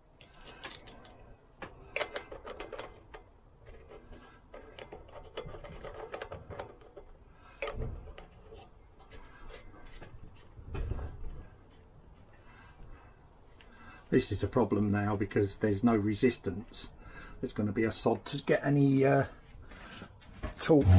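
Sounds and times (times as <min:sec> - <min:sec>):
small metallic clicks and rattles: 0:00.1 - 0:10.7.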